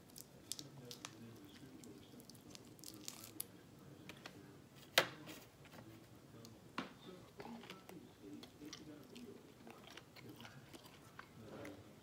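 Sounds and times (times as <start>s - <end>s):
chewing: 0.0s - 3.5s, 7.3s - 12.0s.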